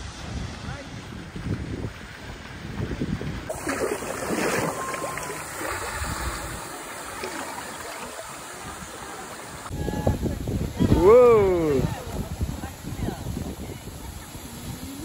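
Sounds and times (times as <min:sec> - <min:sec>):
wind on microphone: 0:00.0 - 0:15.0
shallow water lapping: 0:03.3 - 0:09.7
swimmer splashing: 0:03.5 - 0:09.7.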